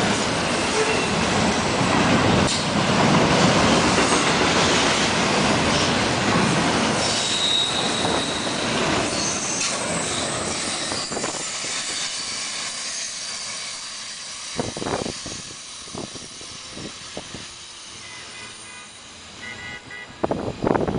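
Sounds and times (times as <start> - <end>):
train wheels rumbling: 0.0 - 19.4
high wheel squeal: 7.0 - 19.6.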